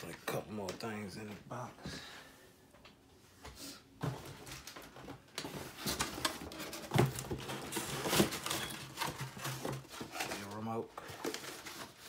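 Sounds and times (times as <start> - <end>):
cardboard scraping and rustling: 5.4 - 12.0.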